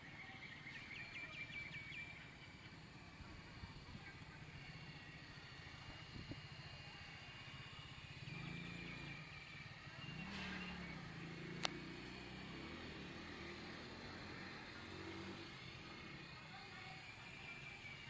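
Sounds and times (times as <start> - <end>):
model helicopter motor whine: 0.0 - 18.0.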